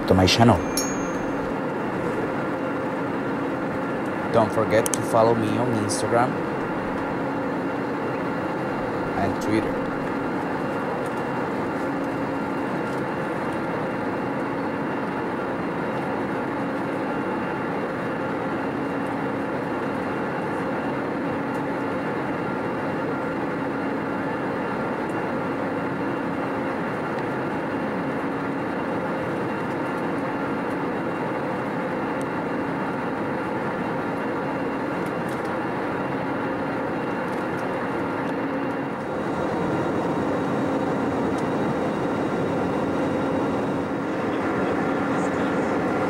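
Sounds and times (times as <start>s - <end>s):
steady hum: 0.0s - 14.6s, 32.4s - 46.0s
airplane cabin roar: 0.0s - 46.0s.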